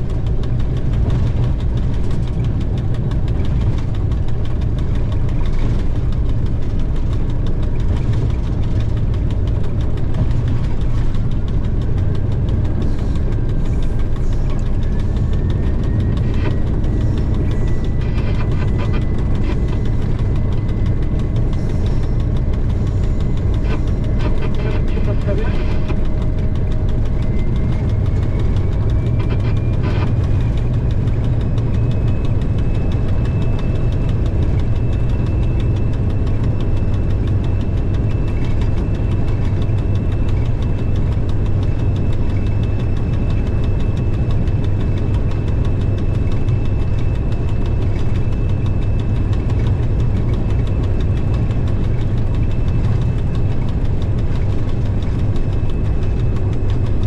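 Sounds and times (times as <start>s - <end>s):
click: 0.0s - 57.0s
diesel engine low drone: 0.0s - 57.0s.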